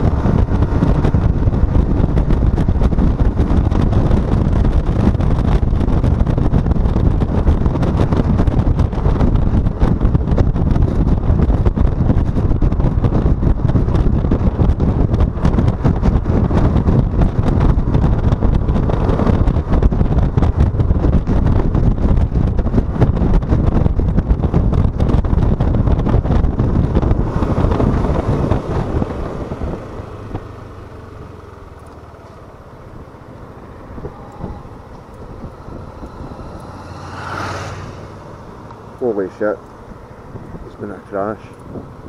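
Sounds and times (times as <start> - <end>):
scooter engine: 0.0 - 42.0
wind buffeting microphone: 0.0 - 42.0.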